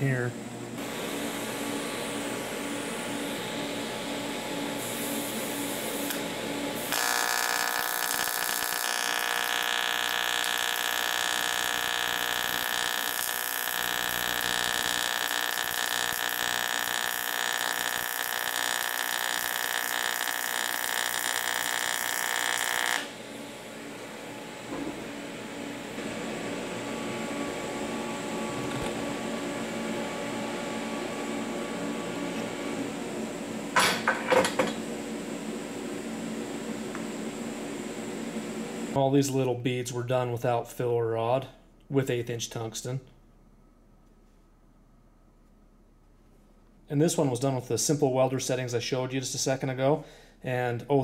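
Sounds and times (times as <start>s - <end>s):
machine hum: 0.0s - 39.6s
welding arc buzzing: 0.1s - 24.4s.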